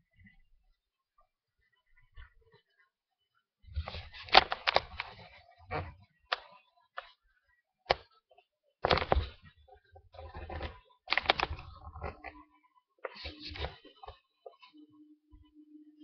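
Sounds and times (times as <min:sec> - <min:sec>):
sharp clicks and knocks: 0:08.8 - 0:09.5.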